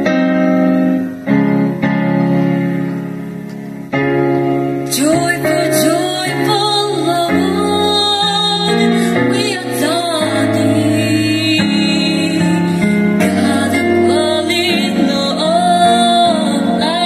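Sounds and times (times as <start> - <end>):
piano chords: 0.0 - 17.0
woman singing with vibrato: 4.8 - 17.0.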